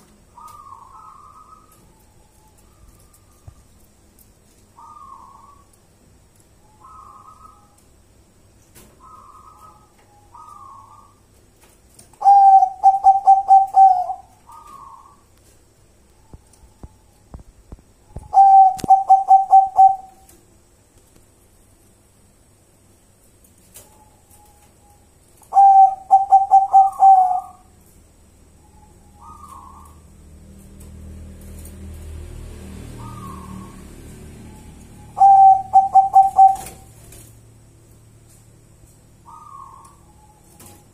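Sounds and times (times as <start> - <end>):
dove cooing: 0.3 - 3.6, 4.8 - 5.7, 6.8 - 7.8, 9.0 - 11.2, 12.2 - 15.2, 18.1 - 20.3, 25.4 - 27.8, 28.7 - 30.1, 32.9 - 37.0, 39.2 - 40.9.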